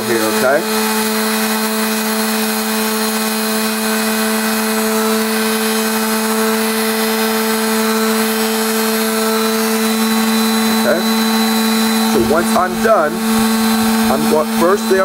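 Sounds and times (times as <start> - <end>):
electric sander motor hum: 0.0 - 15.0
sanding pad hissing on wood: 0.0 - 15.0.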